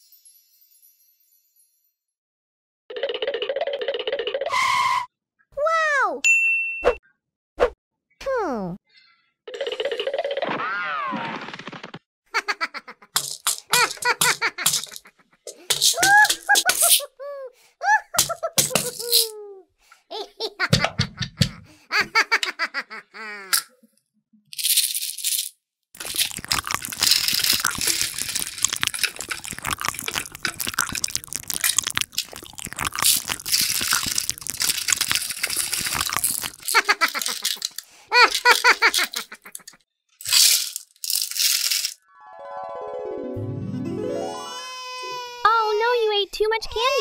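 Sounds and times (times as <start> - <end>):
giggling voice: 12.4 - 23.6, 36.6 - 39.8
candy rattling into plastic toy: 13.1 - 17.1, 18.1 - 19.4, 24.6 - 42.0
toy hammer taps: 20.7 - 21.7.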